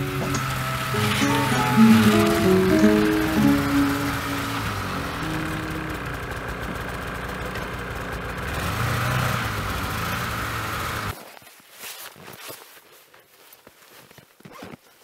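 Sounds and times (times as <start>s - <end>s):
snowmobile engine running: 0.0s - 11.2s.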